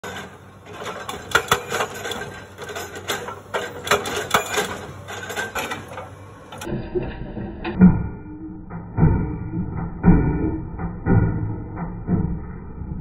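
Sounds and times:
hydraulic breaker hammering rock: 0:00.0 - 0:06.7.

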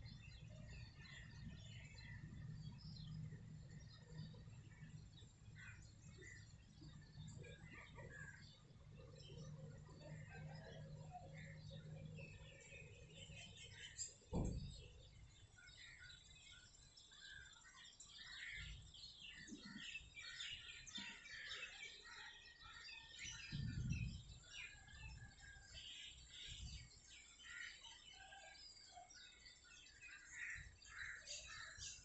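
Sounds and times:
small birds chirping: 0:00.0 - 0:32.0
low rumbles: 0:23.5 - 0:24.5.

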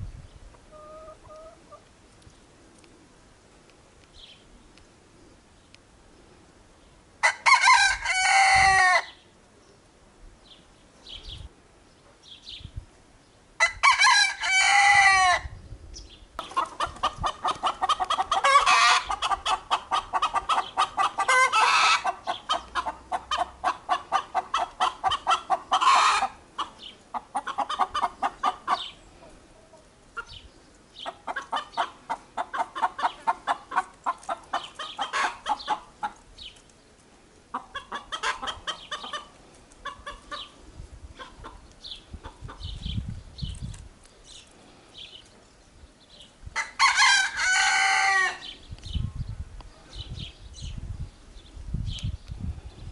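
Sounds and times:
rooster crowing: 0:07.2 - 0:09.1, 0:13.6 - 0:15.4, 0:46.6 - 0:48.5.

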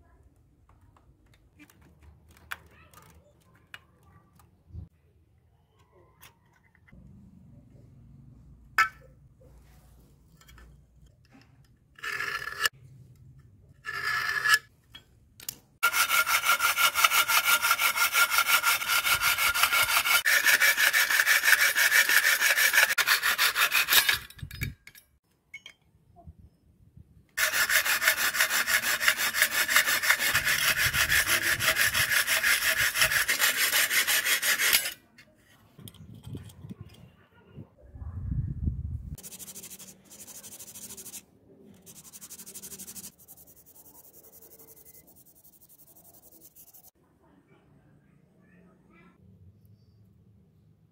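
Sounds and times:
hacksaw cutting metal: 0:15.8 - 0:24.5, 0:27.4 - 0:35.0.

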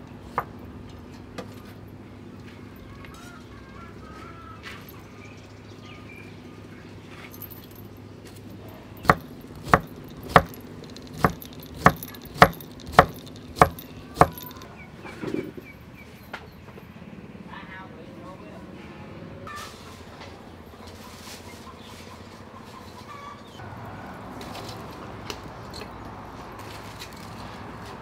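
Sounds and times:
knife chopping on wooden board: 0:09.0 - 0:10.6, 0:11.2 - 0:14.5.

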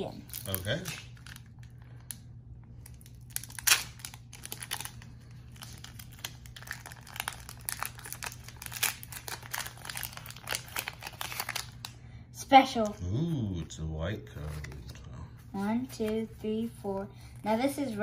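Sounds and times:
foil wrapper crinkling and tearing: 0:00.2 - 0:02.2, 0:02.8 - 0:12.0.

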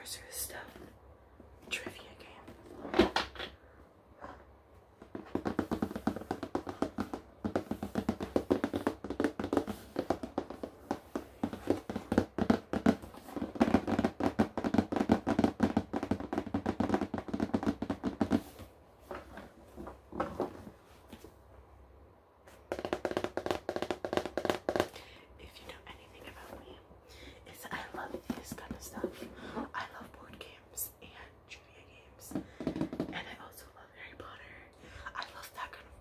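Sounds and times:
fingers tapping on cardboard box: 0:05.0 - 0:18.6, 0:22.7 - 0:24.9, 0:32.3 - 0:33.3.

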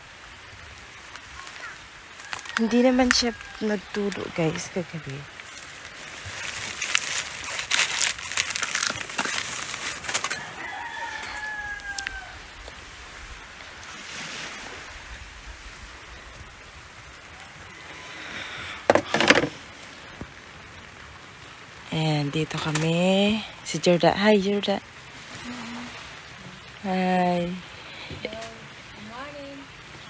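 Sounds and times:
crunching and rustling: 0:01.1 - 0:12.8
rooster crowing: 0:02.2 - 0:04.1, 0:10.2 - 0:12.6, 0:17.3 - 0:19.1.

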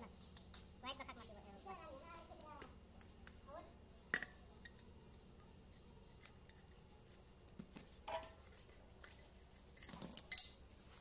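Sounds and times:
metal clink: 0:09.8 - 0:10.7.

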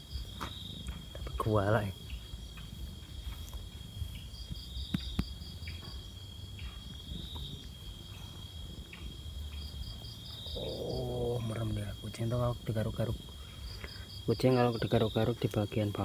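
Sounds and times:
insects trilling: 0:00.0 - 0:16.0
pulsed insect chirp: 0:00.0 - 0:16.0.

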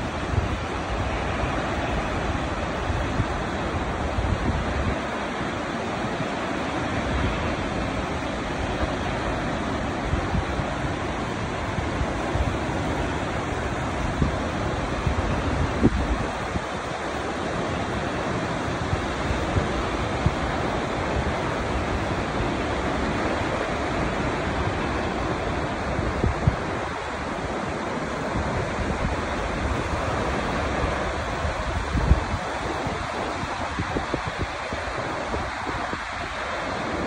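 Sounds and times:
waterfall rushing: 0:00.0 - 0:37.0
wind thumping on microphone: 0:07.1 - 0:17.1, 0:17.8 - 0:37.0.

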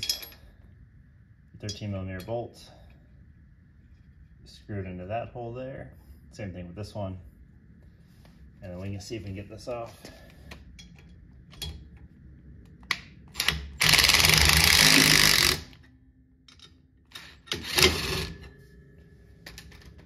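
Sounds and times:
impact wrench hammering bolts: 0:13.3 - 0:15.8.

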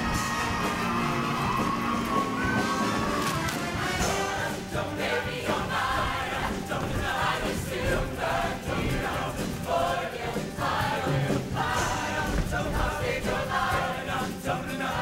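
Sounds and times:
choir singing: 0:00.0 - 0:15.0
instrumental accompaniment: 0:00.0 - 0:15.0.

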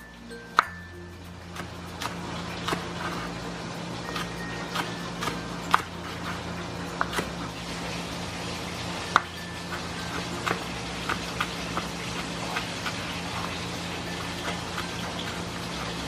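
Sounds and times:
low hum: 0:00.0 - 0:16.0
knife chopping on wooden board: 0:01.5 - 0:03.3, 0:04.1 - 0:07.4, 0:10.0 - 0:13.6.

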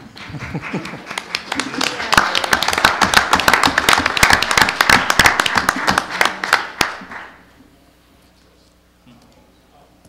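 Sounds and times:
crowd applauding: 0:00.1 - 0:07.5.

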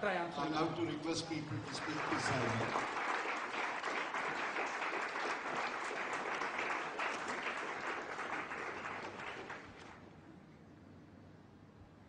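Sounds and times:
audience clapping: 0:00.8 - 0:10.1.

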